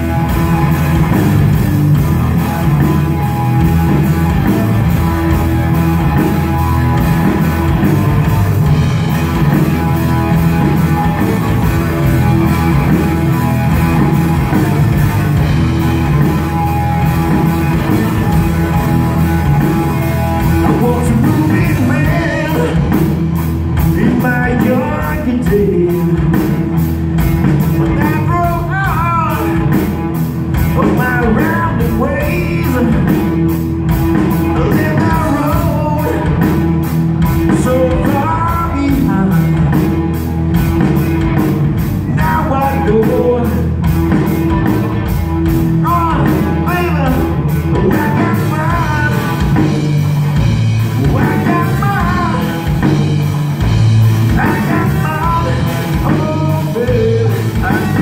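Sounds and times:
rock band playing: 0.0s - 58.0s
person singing: 20.6s - 23.1s, 23.9s - 26.4s, 27.7s - 29.7s, 30.7s - 33.3s, 34.4s - 36.4s, 37.5s - 39.8s, 42.0s - 43.9s, 45.8s - 49.7s, 50.9s - 53.0s, 54.3s - 58.0s.

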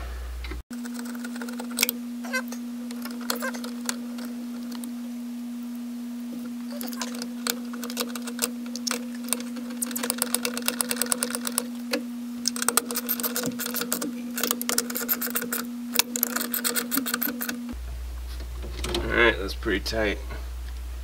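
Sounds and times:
steady low hum: 0.0s - 21.0s
socket ratchet clicking: 12.5s - 17.6s.

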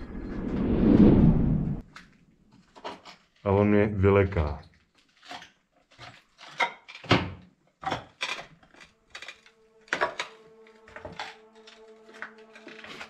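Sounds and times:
low music drone: 8.8s - 13.0s.

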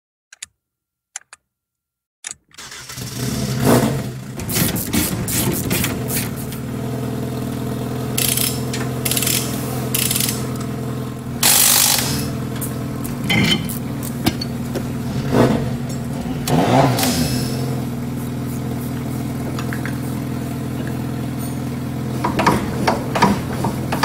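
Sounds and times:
clicks: 0.3s - 0.6s
rally car engine starting and idling: 2.5s - 24.0s
engine blipped: 5.1s - 24.0s.

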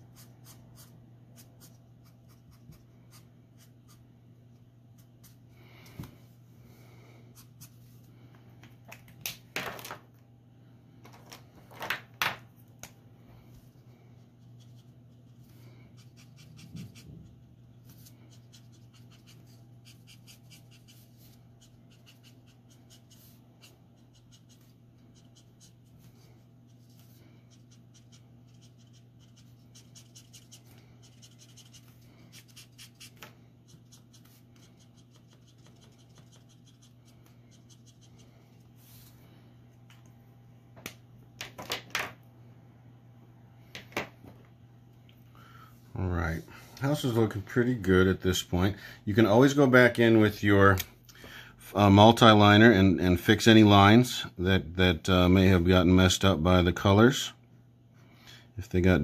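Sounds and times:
faint steady hum: 0.0s - 59.0s
marker nib scratching on paper: 16.0s - 26.1s, 26.7s - 38.4s.

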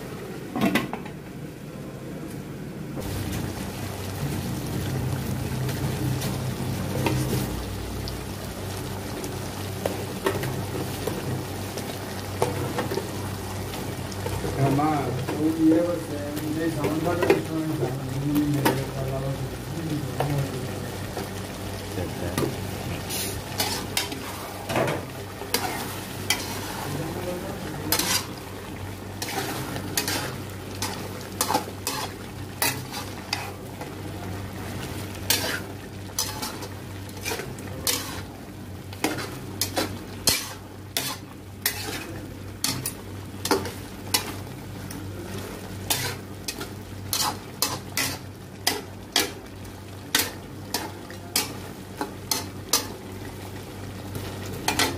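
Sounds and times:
food sizzling: 0.0s - 54.9s
metal spatula scraping a pot: 23.1s - 24.4s, 27.9s - 28.3s, 29.2s - 33.6s, 35.3s - 36.6s, 37.2s - 38.3s, 39.0s - 42.9s, 45.9s - 48.2s.

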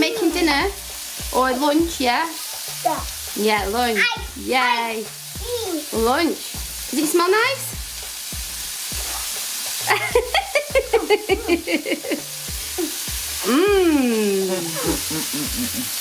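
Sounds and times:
food sizzling in a wok: 0.0s - 16.0s
person calling out: 12.8s - 16.0s.

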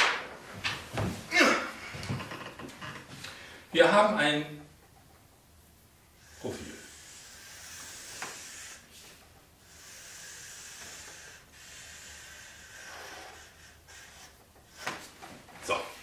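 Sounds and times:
marker drawing on paper: 6.2s - 15.2s.

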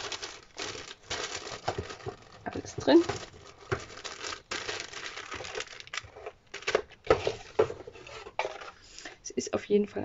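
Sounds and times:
plastic bag crinkling: 0.0s - 7.7s.

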